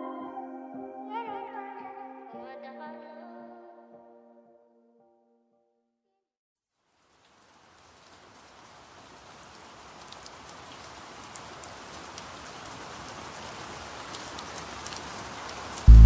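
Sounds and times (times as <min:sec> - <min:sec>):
rain falling: 0:06.8 - 0:16.0.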